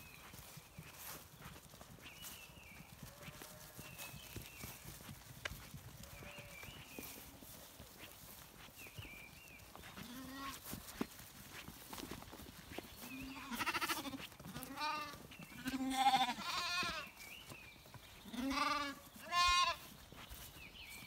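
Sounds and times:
lambs bleating: 0:03.1 - 0:03.8, 0:06.0 - 0:06.6, 0:10.0 - 0:10.6, 0:13.2 - 0:17.1, 0:18.3 - 0:19.9.

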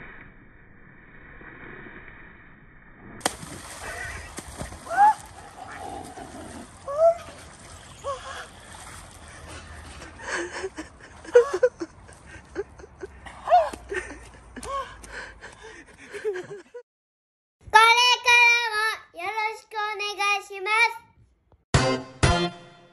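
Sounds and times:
men laughing: 0:09.8 - 0:14.7, 0:15.8 - 0:16.8
high child-like singing: 0:17.7 - 0:21.0.

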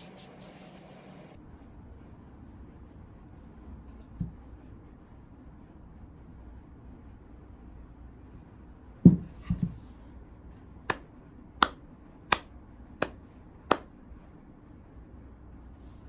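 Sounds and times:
hand claps: 0:10.9 - 0:13.9.

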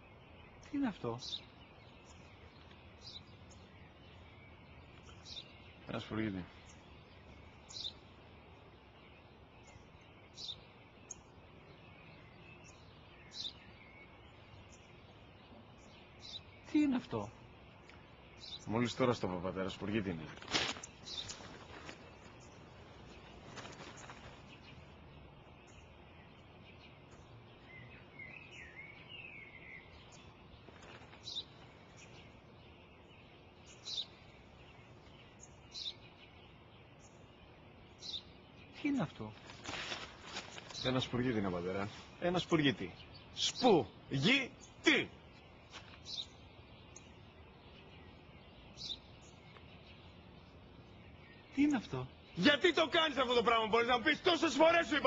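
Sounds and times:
faint outdoor hiss: 0:00.0 - 0:55.0
sparrow chirping: 0:00.0 - 0:55.0.

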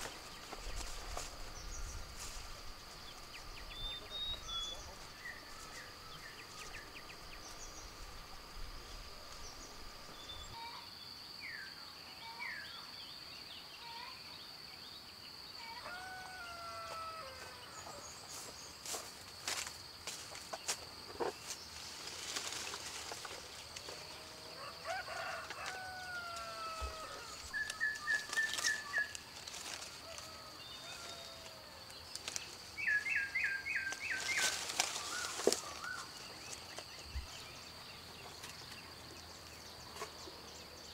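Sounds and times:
leaves rustling and twigs snapping: 0:00.0 - 0:03.4, 0:21.4 - 0:24.2, 0:25.0 - 0:37.0
birds calling and trilling: 0:00.0 - 0:10.8, 0:24.5 - 0:40.9.

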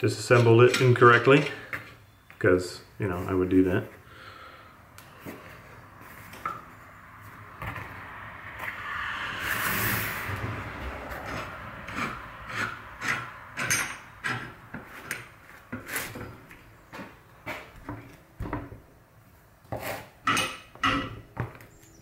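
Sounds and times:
metal jaw scraping: 0:11.1 - 0:15.3.

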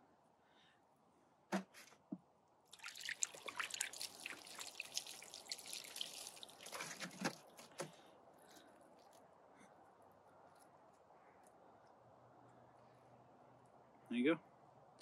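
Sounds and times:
water splashing and dribbling: 0:02.7 - 0:08.1.

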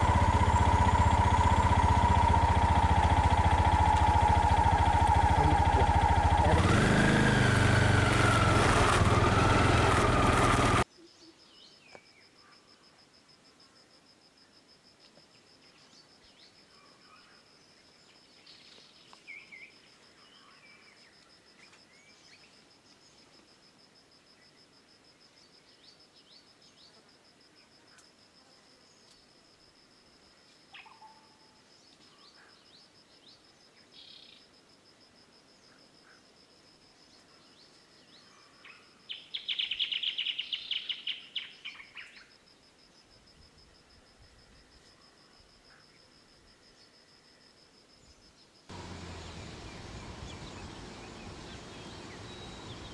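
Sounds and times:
vehicle engine running: 0:00.0 - 0:10.8, 0:48.7 - 0:52.9
bird chirp: 0:37.1 - 0:42.4, 0:48.0 - 0:52.9
faint insect buzzing: 0:42.8 - 0:52.9
birds calling: 0:48.7 - 0:52.9.

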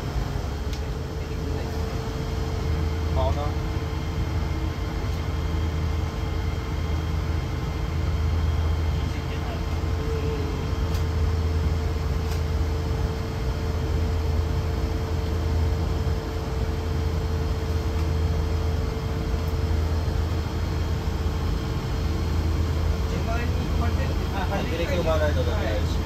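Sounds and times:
bus interior low rumble: 0:00.0 - 0:26.0.

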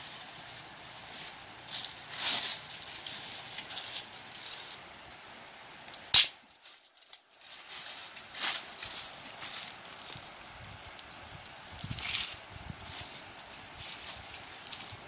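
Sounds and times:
dry leaves crunching and rustling: 0:00.0 - 0:05.1, 0:06.5 - 0:10.4, 0:11.8 - 0:15.0
sharp crack: 0:05.8 - 0:07.2.

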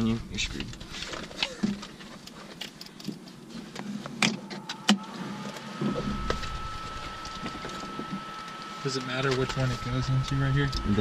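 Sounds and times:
high-pitched electric whine: 0:04.4 - 0:11.0.

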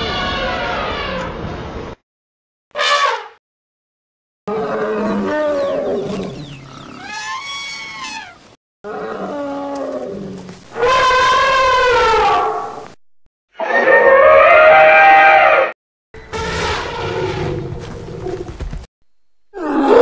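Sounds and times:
high trumpeting blast: 0:02.8 - 0:03.4, 0:16.2 - 0:17.4.

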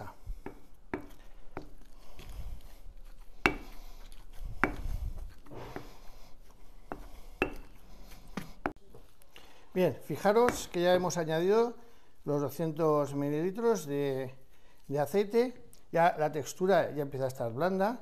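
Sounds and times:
pestle thudding in mash: 0:10.3 - 0:10.8.

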